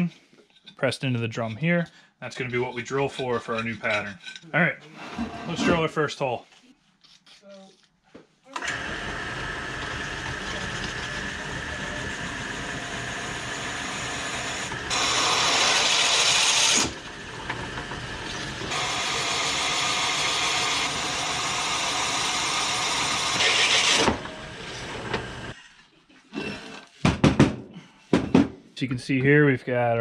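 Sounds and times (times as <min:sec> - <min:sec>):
drill press cutting metal: 0:08.6 - 0:25.6.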